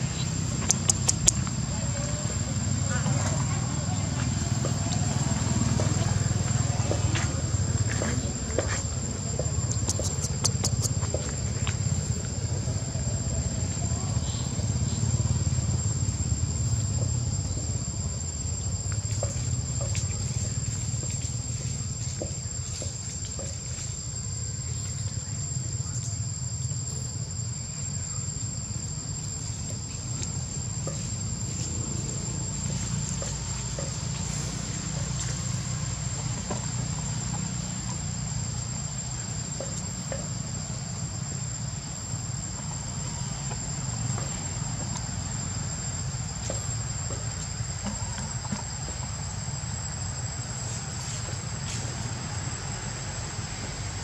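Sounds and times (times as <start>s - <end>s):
steady low rumble: 0.0s - 21.8s
high-pitched insect drone: 0.0s - 54.0s
faint clicks: 0.6s - 1.6s.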